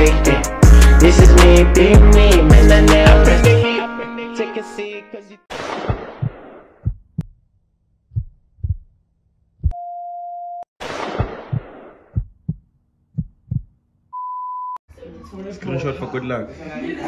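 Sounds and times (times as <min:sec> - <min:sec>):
low heartbeat-like thuds: 0:05.9 - 0:07.3, 0:08.1 - 0:09.0, 0:11.2 - 0:13.8.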